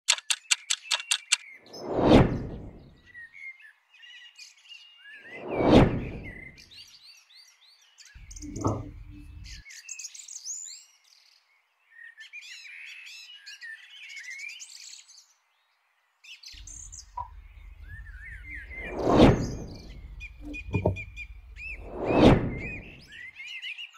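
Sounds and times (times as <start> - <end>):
birds chirping and singing: 0.2 - 1.9, 2.6 - 15.3, 16.3 - 23.9
dull thump: 19.2 - 21.3.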